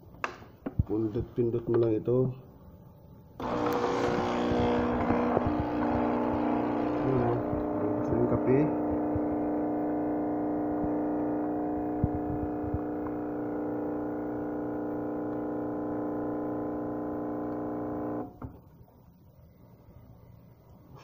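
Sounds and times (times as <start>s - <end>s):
coffee machine pump humming: 3.4s - 18.6s.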